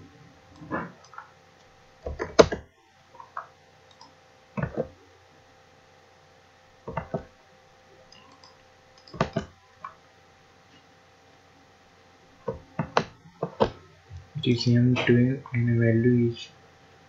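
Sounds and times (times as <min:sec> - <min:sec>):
faint steady hum: 0:00.0 - 0:17.0
mouse and keyboard clicks: 0:08.1 - 0:10.0.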